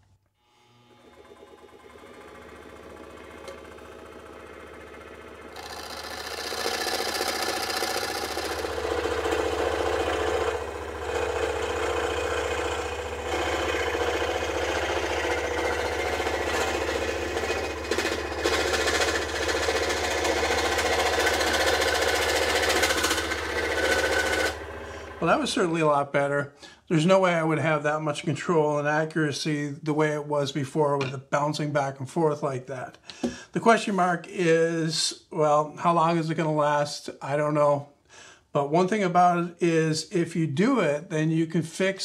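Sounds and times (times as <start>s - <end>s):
scroll saw motor hum: 0.1s - 25.2s
saw blade chatter: 5.6s - 25.2s.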